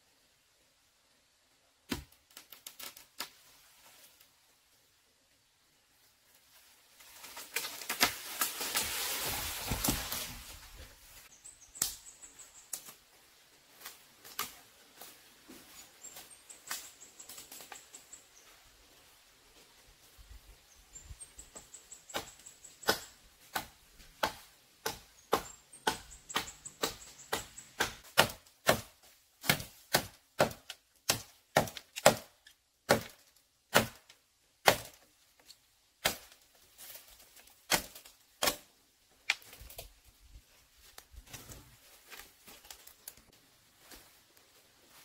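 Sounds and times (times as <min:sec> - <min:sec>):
blade chopping bamboo: 0:01.9 - 0:02.2, 0:22.1 - 0:35.0, 0:36.0 - 0:36.4, 0:37.7 - 0:38.7.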